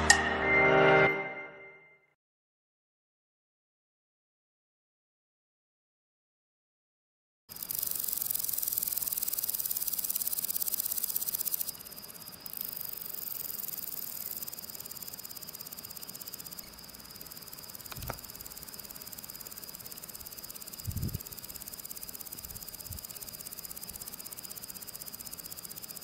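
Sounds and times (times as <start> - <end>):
grasshopper stridulating: 7.5 - 26.0.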